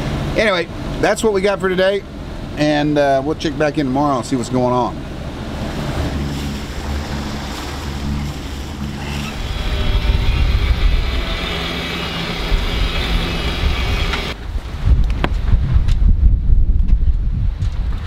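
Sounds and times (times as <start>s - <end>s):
sea water wash: 0.0s - 15.0s
low steady hum: 0.0s - 17.5s
wind buffeting microphone: 5.0s - 18.0s.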